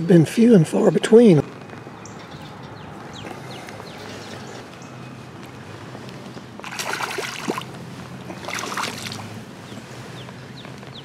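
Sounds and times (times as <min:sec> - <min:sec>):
fish splashing in water: 0:06.6 - 0:09.4.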